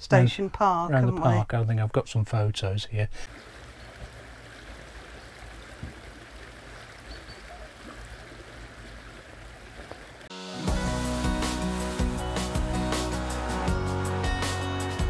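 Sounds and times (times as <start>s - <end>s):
stream running over stones: 3.2s - 10.3s.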